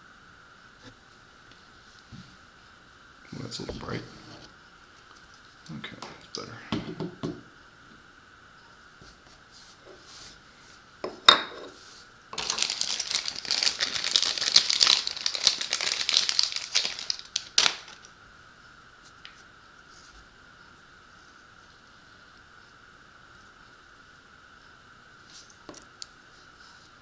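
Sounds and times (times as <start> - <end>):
plastic bag crinkling: 12.4 - 18.1.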